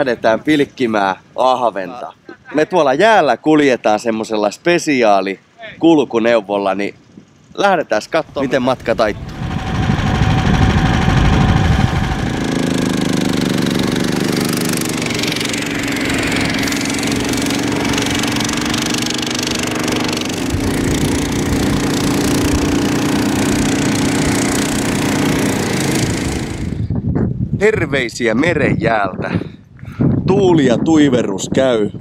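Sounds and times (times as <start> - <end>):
snowmobile engine running: 8.3 - 27.0.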